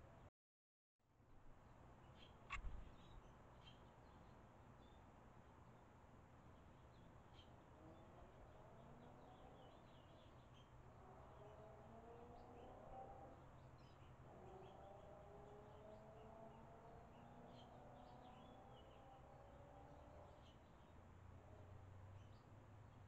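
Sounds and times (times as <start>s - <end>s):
faint bird chirps: 2.0s - 5.0s.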